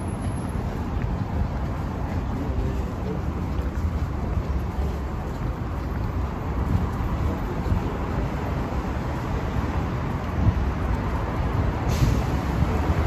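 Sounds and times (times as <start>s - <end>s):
road traffic rumble: 0.0s - 13.0s
brief hiss: 11.9s - 12.4s.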